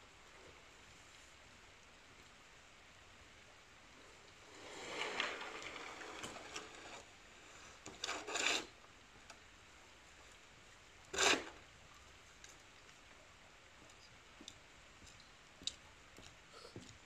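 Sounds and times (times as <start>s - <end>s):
shovel scraping concrete: 8.0s - 8.7s, 11.2s - 11.6s.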